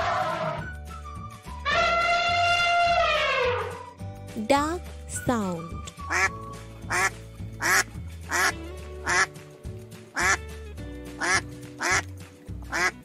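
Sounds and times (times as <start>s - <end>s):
background music: 0.0s - 13.0s
duck quacking: 6.1s - 6.3s, 6.9s - 9.3s, 11.2s - 12.1s, 12.7s - 13.0s.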